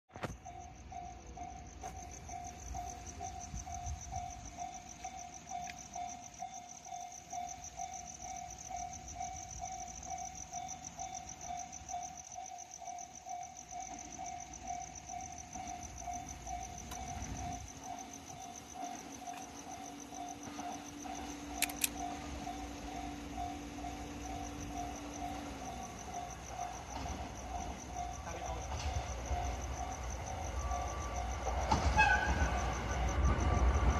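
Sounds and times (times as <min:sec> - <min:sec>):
level crossing warning bell: 0:00.4 - 0:33.9
locomotive engine drone: 0:13.7 - 0:33.9.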